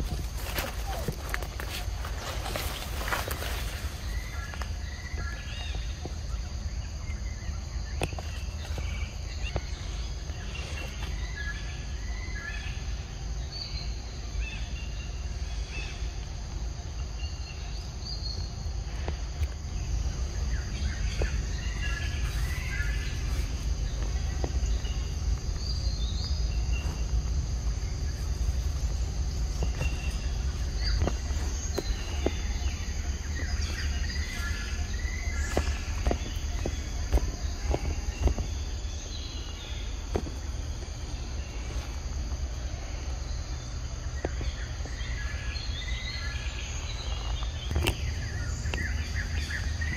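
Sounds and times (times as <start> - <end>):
birds chirping: 0.0 - 49.9
high insect drone: 0.0 - 49.9.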